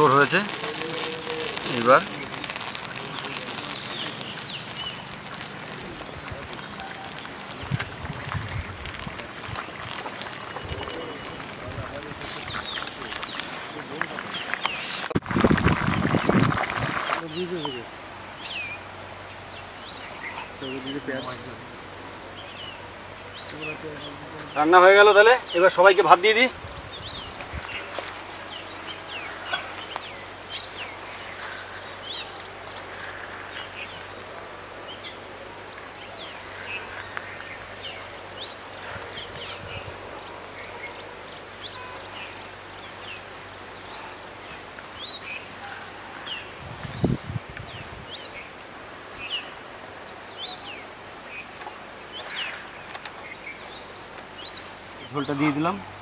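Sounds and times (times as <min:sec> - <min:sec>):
bird chirps: 0:00.0 - 0:15.2, 0:26.9 - 0:48.5
steady background hiss: 0:00.0 - 0:15.5, 0:16.3 - 0:56.0.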